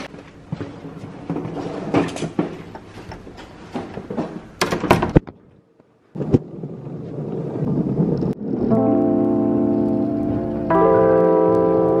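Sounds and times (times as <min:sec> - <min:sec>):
suitcase wheels rolling on wood: 0:00.0 - 0:05.6, 0:06.2 - 0:08.6.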